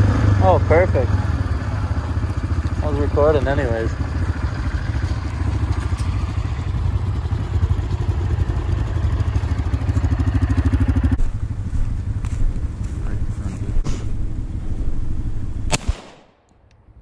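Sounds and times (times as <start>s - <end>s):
quad bike engine rumbling: 0.0s - 15.7s.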